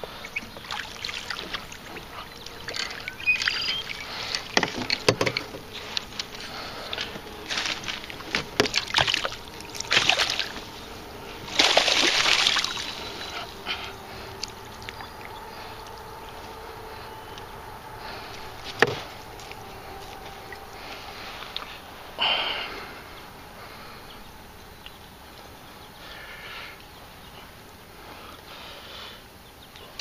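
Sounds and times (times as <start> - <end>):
gear knocking in a canoe: 0.4 - 10.6.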